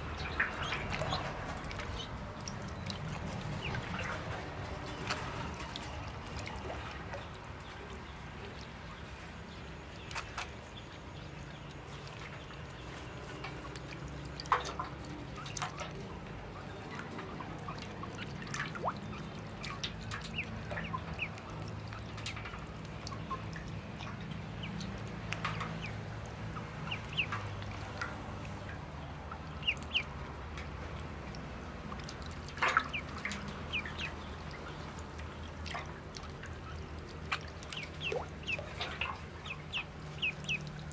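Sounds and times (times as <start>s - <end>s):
ducklings peeping: 0.0s - 10.8s, 11.4s - 30.7s, 31.3s - 40.9s
water splashing and dripping: 0.0s - 40.9s.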